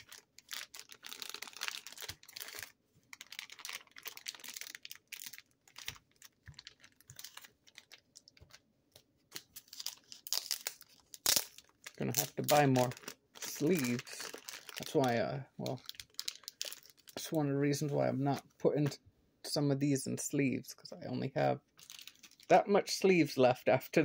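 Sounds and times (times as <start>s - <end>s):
plastic packaging crinkling: 0.0s - 17.9s, 21.8s - 22.5s.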